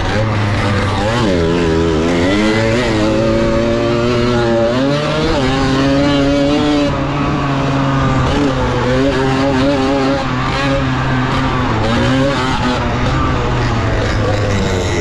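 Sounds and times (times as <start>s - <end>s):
moped engine revving hard: 0.0s - 15.0s.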